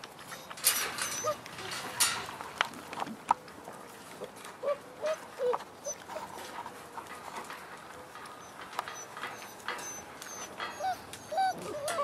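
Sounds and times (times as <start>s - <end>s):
puppies whining: 0.3s - 1.8s, 4.6s - 6.1s, 8.4s - 12.0s.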